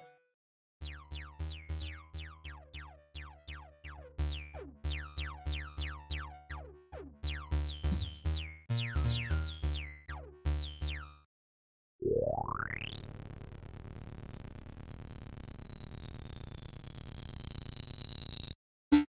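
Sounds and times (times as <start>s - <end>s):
acid synth bass notes: 0.9s - 11.2s.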